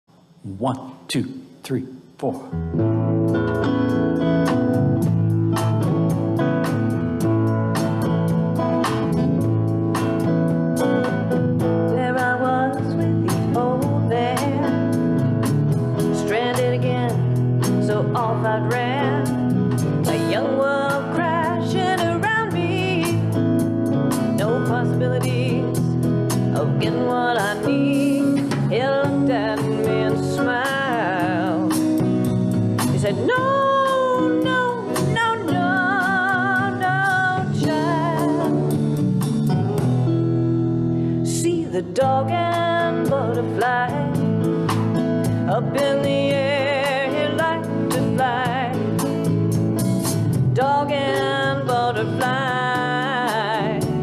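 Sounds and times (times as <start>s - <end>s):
drums: 1.3s - 54.0s
electric guitar: 2.5s - 54.0s
mandolin: 3.0s - 54.0s
woman singing: 11.8s - 15.3s, 16.0s - 39.0s, 41.2s - 49.4s, 50.4s - 54.0s.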